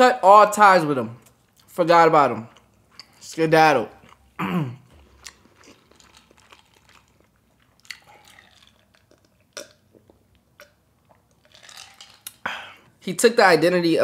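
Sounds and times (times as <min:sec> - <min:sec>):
mouth chewing: 0:02.5 - 0:03.3, 0:03.9 - 0:12.5
man gulping water: 0:04.0 - 0:13.0.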